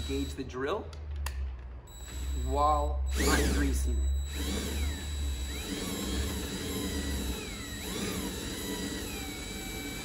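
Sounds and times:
cordless drill whine: 0.0s - 0.4s, 1.9s - 10.0s
low hum: 0.0s - 8.0s.

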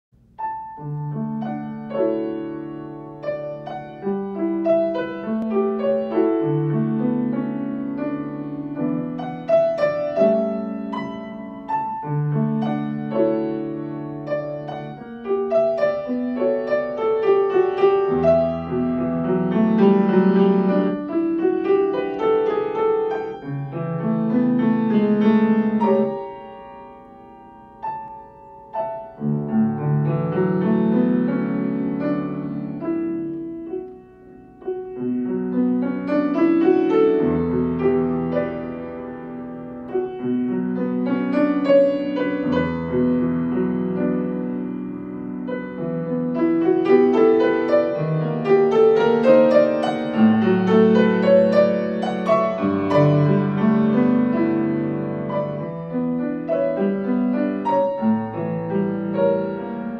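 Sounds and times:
gentle grand piano piece: 0.1s - 59.9s.

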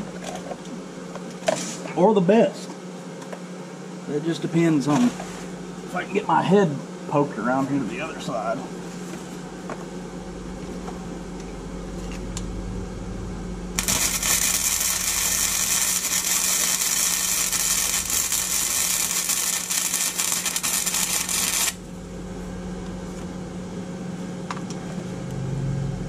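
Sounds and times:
low steady hum: 0.0s - 26.0s
arc welding crackling hiss: 13.8s - 21.9s.

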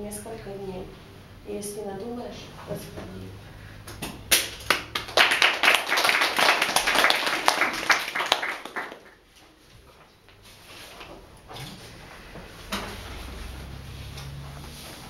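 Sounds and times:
small audience applauding: 4.3s - 9.3s.

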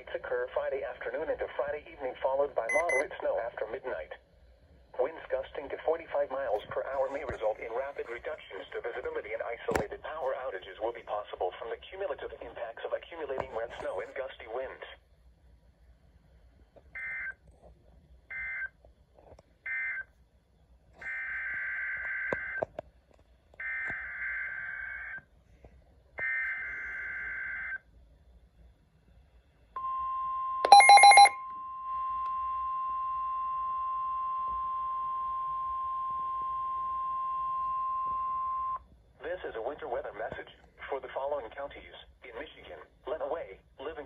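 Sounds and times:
electronic beeping: 2.7s - 3.0s, 30.6s - 31.4s
steady alert tone: 30.7s - 31.3s.

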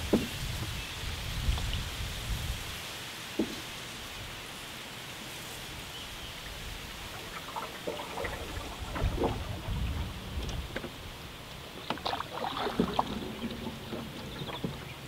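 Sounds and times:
soft steady hiss: 0.0s - 12.4s
water splashing off paddle: 6.4s - 15.0s.

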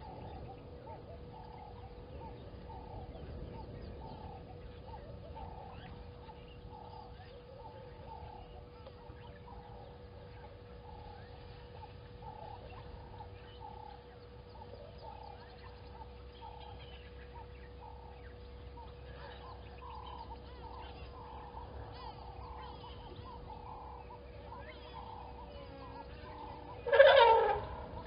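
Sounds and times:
steady hum: 0.0s - 28.0s
short animal calls: 25.7s - 28.0s.

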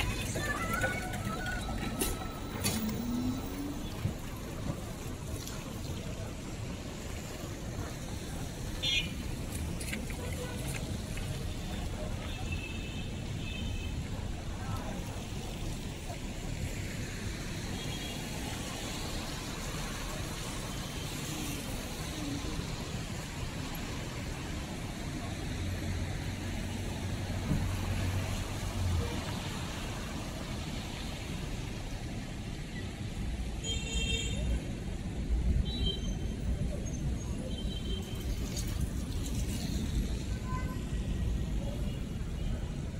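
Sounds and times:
steady traffic hiss: 0.0s - 42.9s
vehicles passing: 0.0s - 42.9s.

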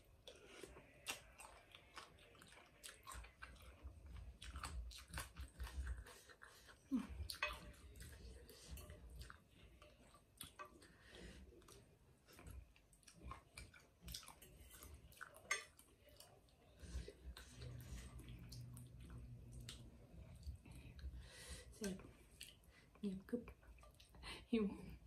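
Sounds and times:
quiet chewing: 0.0s - 25.0s
cutlery clicking on bowl: 15.5s - 15.8s.

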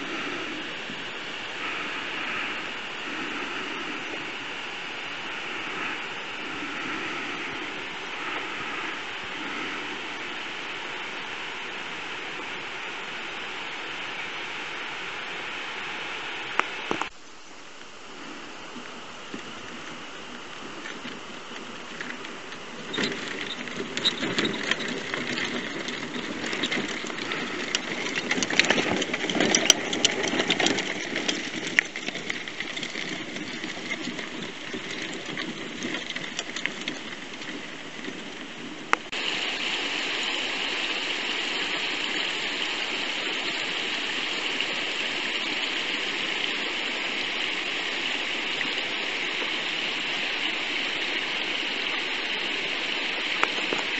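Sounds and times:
mountain stream rushing: 0.0s - 53.9s
tyres crunching on loose rocks: 19.3s - 39.2s
scooter motor running: 19.4s - 53.9s.

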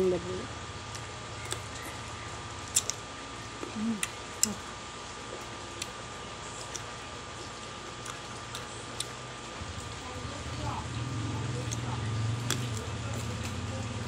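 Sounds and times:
crisp fruit biting clicks: 2.7s - 3.0s
person humming: 3.7s - 4.6s.

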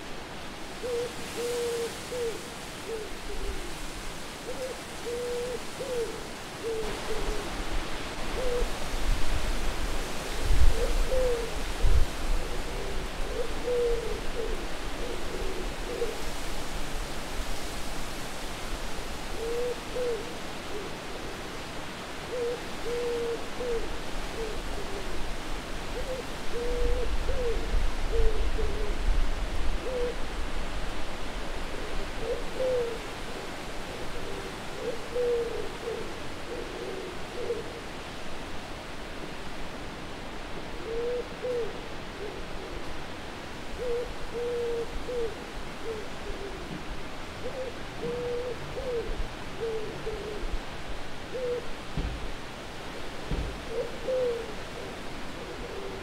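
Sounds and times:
steady wind: 0.0s - 56.0s
owl hooting: 0.8s - 3.8s, 4.5s - 7.6s, 8.4s - 8.7s, 10.7s - 11.6s, 12.4s - 16.2s, 22.3s - 25.1s, 26.0s - 29.0s, 32.2s - 33.0s, 34.0s - 37.8s, 40.8s - 42.7s, 43.8s - 46.8s, 47.4s - 50.5s, 51.3s - 51.7s, 53.7s - 56.0s.

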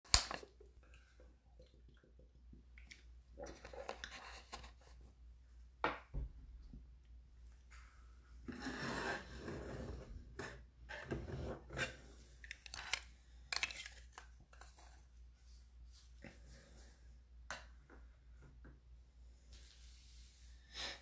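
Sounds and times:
rustling and scraping handling noise: 3.5s - 5.2s, 7.6s - 17.1s.

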